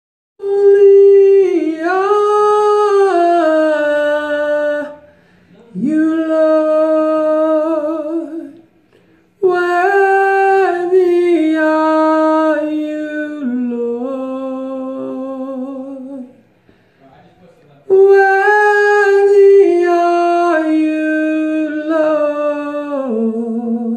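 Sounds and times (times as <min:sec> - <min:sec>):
man singing unaccompanied: 0:00.4 - 0:08.6, 0:09.4 - 0:16.4, 0:17.8 - 0:23.9
man breathing: 0:05.0 - 0:05.7, 0:08.8 - 0:09.4, 0:16.4 - 0:17.2.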